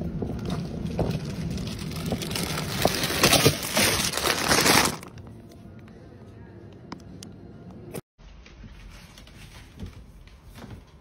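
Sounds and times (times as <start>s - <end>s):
shopping cart rolling and rattling: 0.3s - 5.1s.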